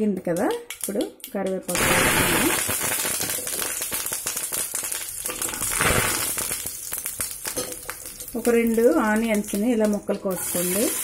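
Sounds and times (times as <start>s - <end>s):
leaves sizzling in hot oil: 1.7s - 11.0s.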